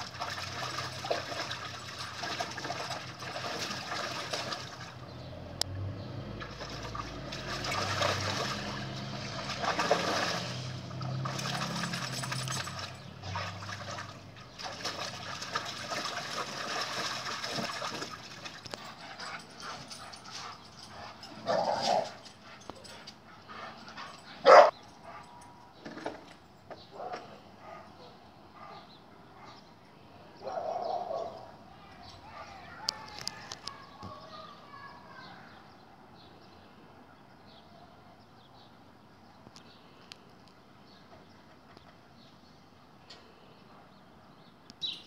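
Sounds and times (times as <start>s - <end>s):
puppy splashing in water: 0.0s - 20.6s
water sloshing and dripping: 0.0s - 27.2s
puppy barking: 24.4s - 25.2s.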